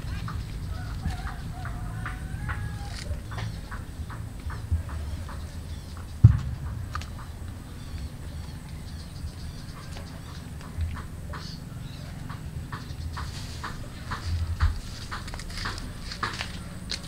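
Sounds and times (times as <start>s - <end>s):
low rumble: 0.0s - 12.0s
sharp thump: 6.0s - 7.6s.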